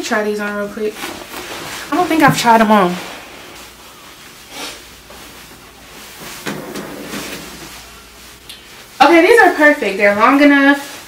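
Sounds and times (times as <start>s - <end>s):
clothing rustling: 0.8s - 9.5s.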